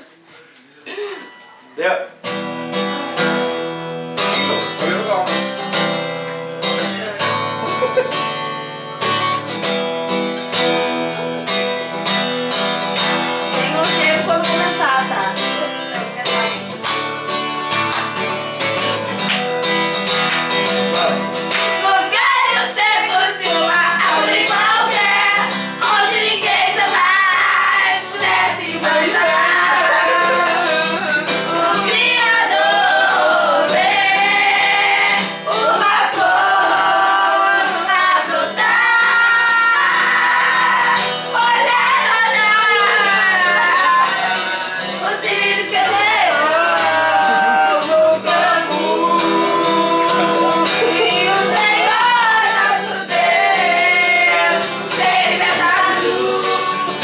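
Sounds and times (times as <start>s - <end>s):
acoustic guitar strumming: 0.9s - 57.0s
woman singing: 13.5s - 16.6s, 21.8s - 57.0s.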